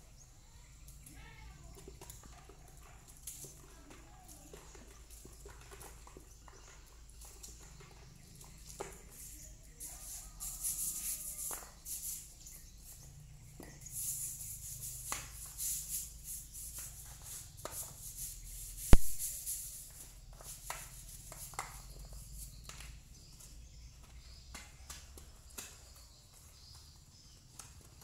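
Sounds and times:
small knocks and clicks: 19.9 - 28.0.

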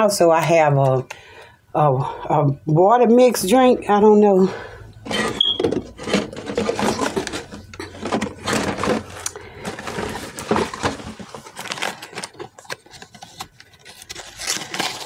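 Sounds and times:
rummaging rustles and taps: 5.1 - 15.0.

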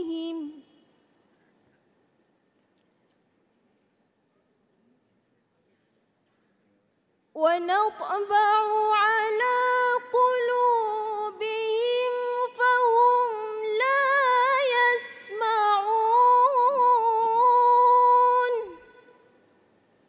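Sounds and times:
woman melodic reciting: 0.0 - 0.9, 7.4 - 19.1.

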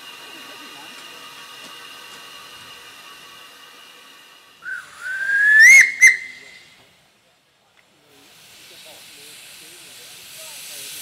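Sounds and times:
steam locomotive whistle: 4.6 - 6.8.

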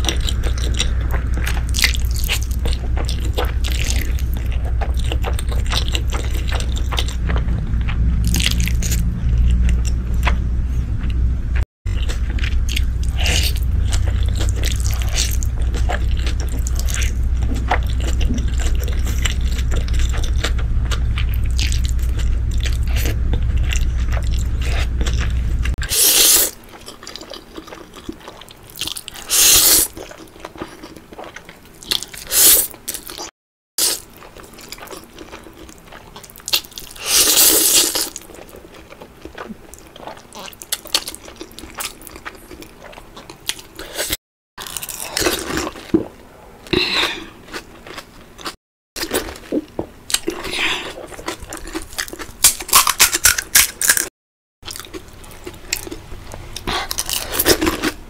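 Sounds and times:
wet chewing and slurping: 0.0 - 11.2, 11.9 - 58.0
steady low hum: 0.0 - 29.2.

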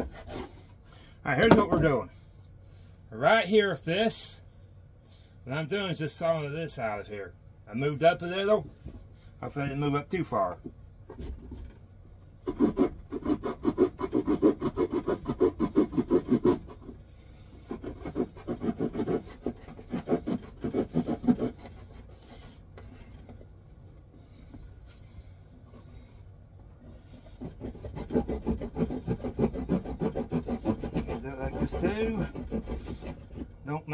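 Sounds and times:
hand saw cutting wood: 0.0 - 0.7, 12.4 - 23.2, 27.0 - 33.7.

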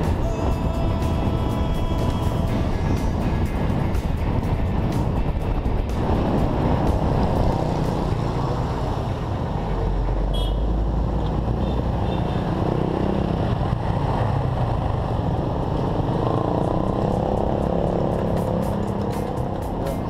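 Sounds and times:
wind and road noise: 0.0 - 20.0
motorcycle engine running: 13.0 - 20.0.

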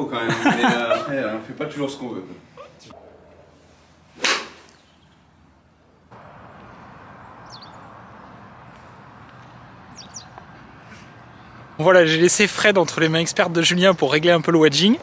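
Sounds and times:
golf club swish and strike: 3.3 - 4.9.

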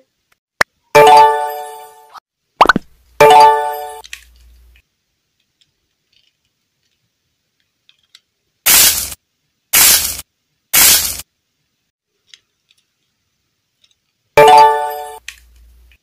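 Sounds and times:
loud cracking sound effect: 8.7 - 9.2, 9.8 - 10.2, 10.8 - 11.2.

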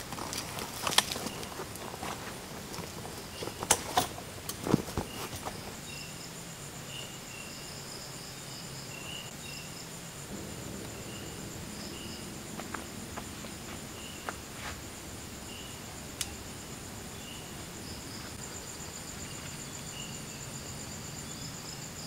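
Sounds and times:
insects trilling: 0.0 - 22.0
lower insect chirps: 4.8 - 22.0.

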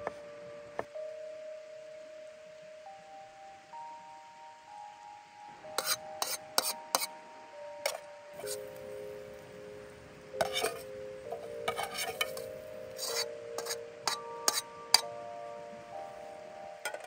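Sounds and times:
soft background music: 0.0 - 17.0
metal utensils scraping a pot: 5.8 - 7.1, 7.9 - 8.7, 10.4 - 14.7
food set on wooden board: 10.4 - 10.8.

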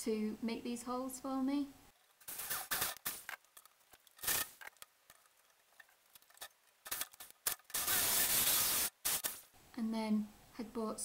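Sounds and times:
power drill cutting metal: 7.8 - 9.3.

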